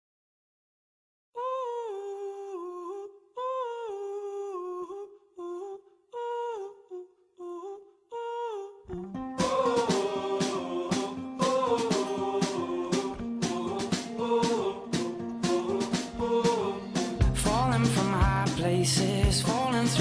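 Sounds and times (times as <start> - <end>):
person humming a melody: 1.4 - 10.2
band with drums: 9.4 - 20.0.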